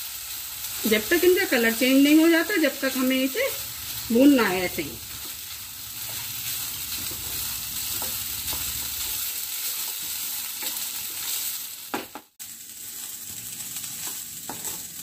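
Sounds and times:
rice sizzling in a pan: 0.0s - 15.0s
spatula scraping a pan: 6.0s - 11.6s, 12.9s - 15.0s.

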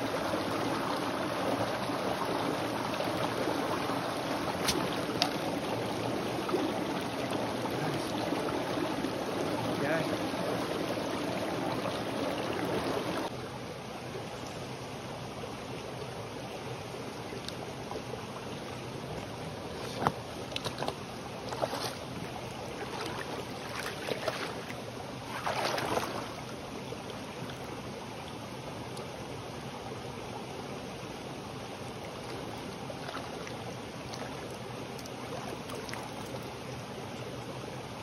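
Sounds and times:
brook flowing over rocks: 0.0s - 13.4s, 15.6s - 38.0s
wading steps splashing: 4.5s - 5.5s, 19.7s - 26.4s.

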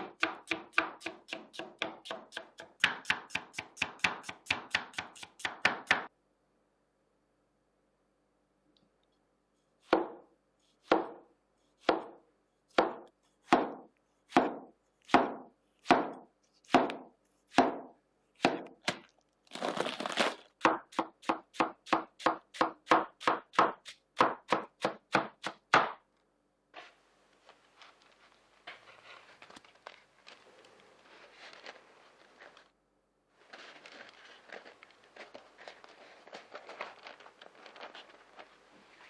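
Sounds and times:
lettuce rustling: 19.0s - 20.6s, 27.4s - 32.7s, 33.4s - 39.0s.

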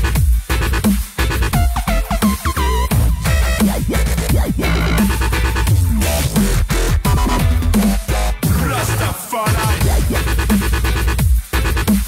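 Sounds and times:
dubstep music with heavy bass: 0.0s - 12.0s
sliding synth sounds: 1.8s - 8.3s.

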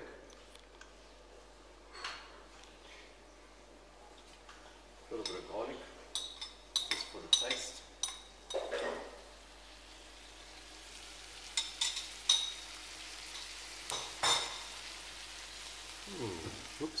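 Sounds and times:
vegetables sizzling in a frying pan: 8.6s - 17.0s.

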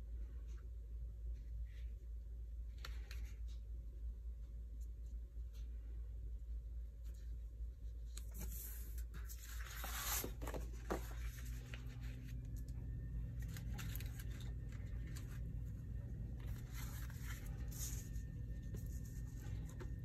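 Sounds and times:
paper rustling and sliding: 8.2s - 12.7s, 13.3s - 20.0s.

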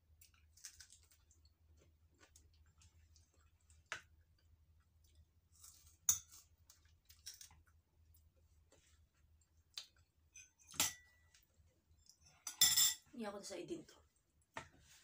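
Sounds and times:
wet eating clicks and smacks: 9.4s - 10.2s.

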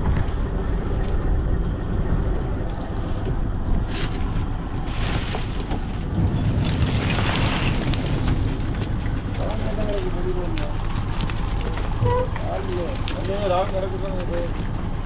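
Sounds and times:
boat engine drone: 0.0s - 15.0s.

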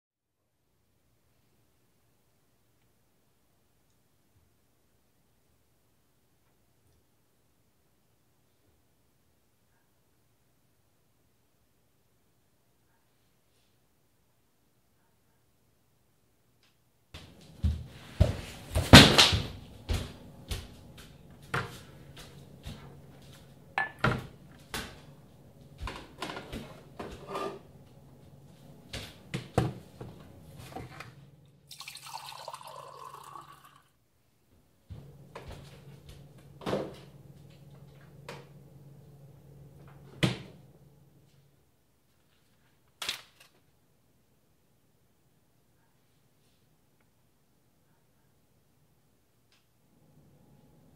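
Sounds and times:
low steady hum: 17.2s - 42.8s
water poured into a glass: 31.7s - 33.9s.

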